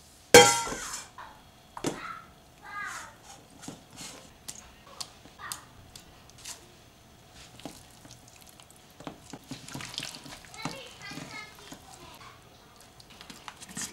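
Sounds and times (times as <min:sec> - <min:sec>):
wet squelches: 0:07.4 - 0:10.7.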